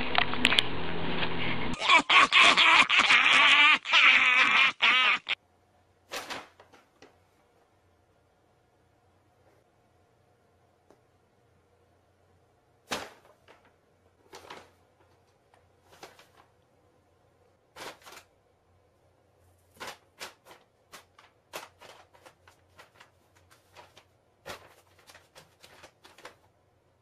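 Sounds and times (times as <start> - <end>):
paper bag rustling: 12.9 - 16.6, 17.7 - 18.4, 19.5 - 26.5.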